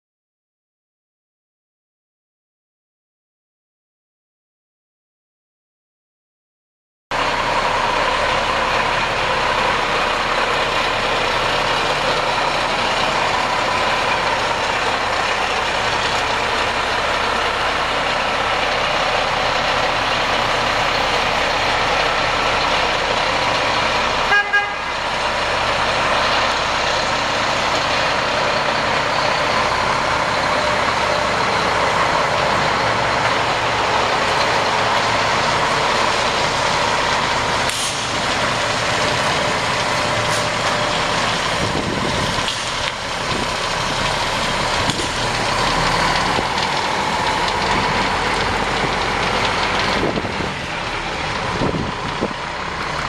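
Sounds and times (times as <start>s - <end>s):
diesel truck engine running: 7.1s - 53.0s
horn double toot: 24.3s - 24.9s.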